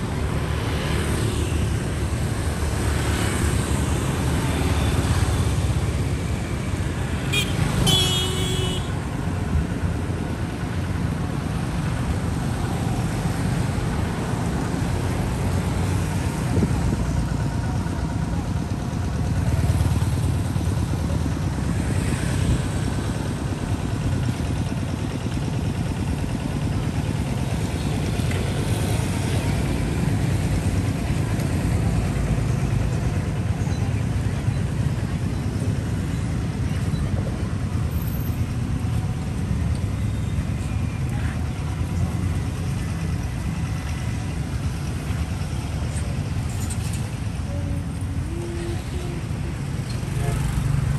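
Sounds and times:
low traffic rumble: 0.0s - 50.9s
motorbikes passing: 0.0s - 50.9s.

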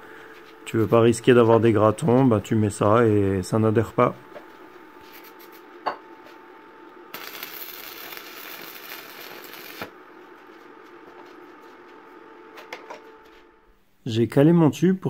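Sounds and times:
arc welding crackling and hissing: 7.1s - 10.0s.

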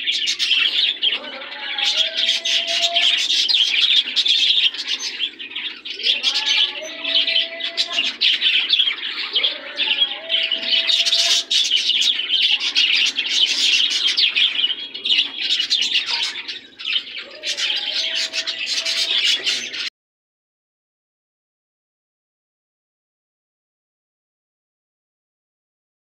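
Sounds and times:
caged birds chirping: 0.0s - 19.9s.

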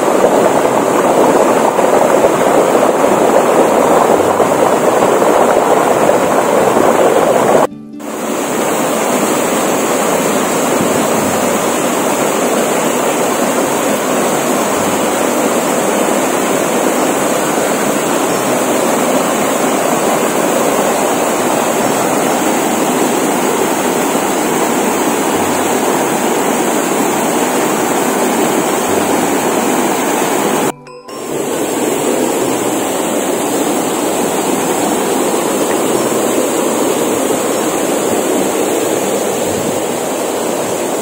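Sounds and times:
waterfall pouring into pool: 0.0s - 30.7s, 31.3s - 41.0s.

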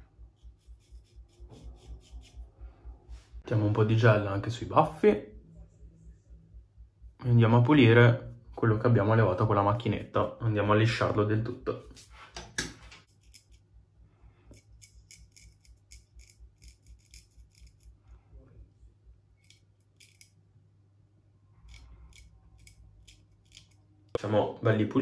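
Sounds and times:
razor scraping stubble: 0.4s - 2.5s, 13.0s - 13.6s, 14.5s - 18.0s, 19.4s - 20.4s, 21.6s - 23.9s.

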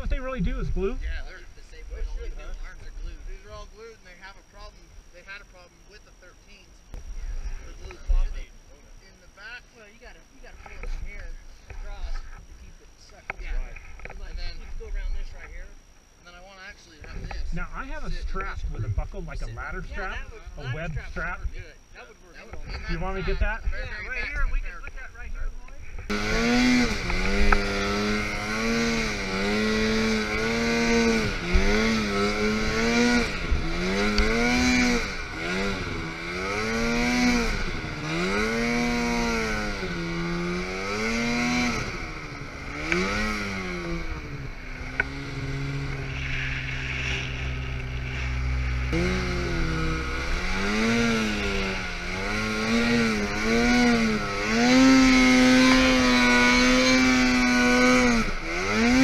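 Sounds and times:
snowmobile engine revving: 0.0s - 6.6s, 17.0s - 21.5s, 25.9s - 59.0s.

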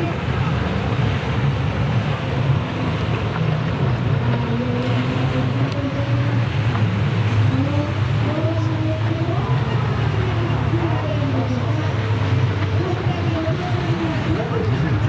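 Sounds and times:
jet ski engines revving: 0.0s - 15.0s
steady low rumble: 0.0s - 15.0s.

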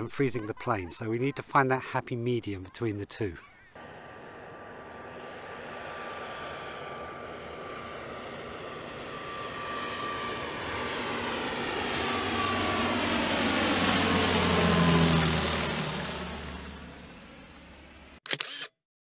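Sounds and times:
turboprop engines droning: 0.0s - 18.2s
high engine whine: 3.8s - 18.7s.

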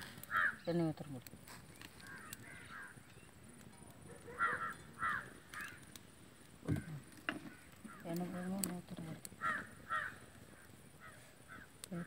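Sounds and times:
bird cawing: 0.2s - 0.7s, 1.9s - 3.2s, 4.1s - 6.0s, 6.7s - 8.2s, 9.3s - 11.8s.

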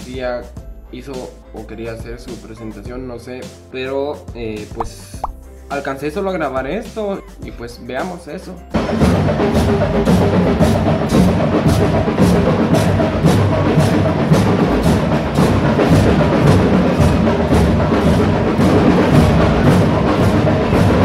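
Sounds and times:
drums beating march rhythm: 8.7s - 21.0s
marching band playing: 8.8s - 21.0s.

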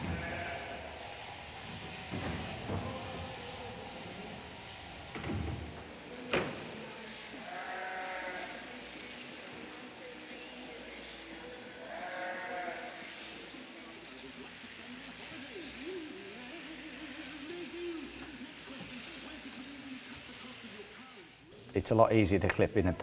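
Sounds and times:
sheep bleating: 0.0s - 1.0s, 7.3s - 8.9s, 11.0s - 13.5s
electric shears whirring: 0.0s - 23.0s.

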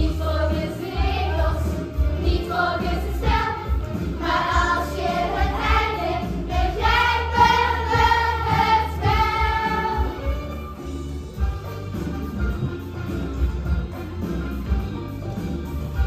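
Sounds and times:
children singing: 0.0s - 10.3s
instrumental accompaniment with beat: 0.0s - 16.0s.

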